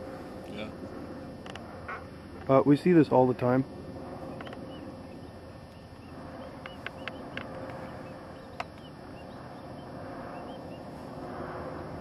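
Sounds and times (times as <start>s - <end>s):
whirring of flying ducks: 3.7s - 12.0s
short chirping calls: 4.4s - 10.9s.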